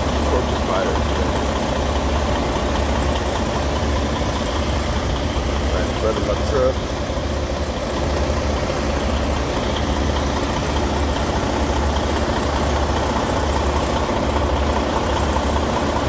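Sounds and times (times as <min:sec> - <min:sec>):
diesel truck engine idling: 0:00.0 - 0:16.0.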